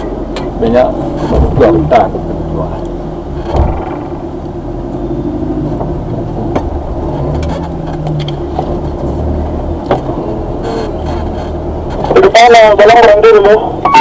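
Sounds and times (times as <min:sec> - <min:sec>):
vehicle knocks and rattles: 0:00.0 - 0:02.1, 0:03.3 - 0:04.4, 0:05.6 - 0:13.0
vehicle engine running: 0:00.0 - 0:14.0.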